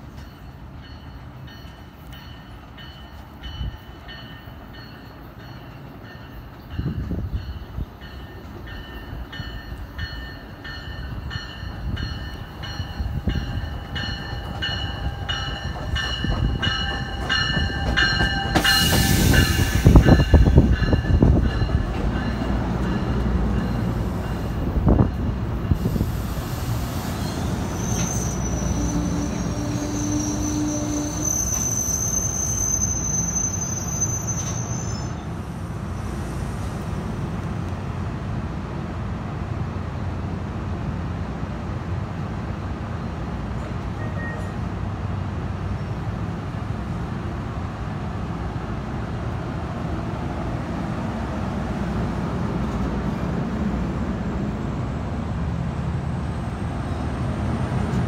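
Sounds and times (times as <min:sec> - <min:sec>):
train bell ringing: 0:00.0 - 0:25.9, 0:43.6 - 0:44.7
train cars rumbling past: 0:00.0 - 0:58.0
high brake squeal: 0:18.6 - 0:20.3, 0:25.8 - 0:36.4, 0:44.0 - 0:44.6.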